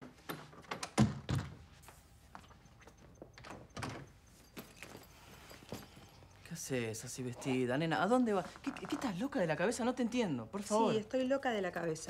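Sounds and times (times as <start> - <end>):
wooden door thumps: 0.9 - 1.6.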